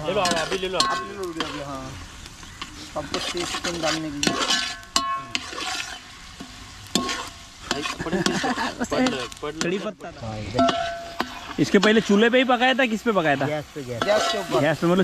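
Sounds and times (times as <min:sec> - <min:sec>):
food sizzling: 0:00.0 - 0:15.0
metal spatula scraping pot: 0:00.0 - 0:15.0
spatula clinking against pot: 0:00.2 - 0:01.6, 0:10.6 - 0:12.1.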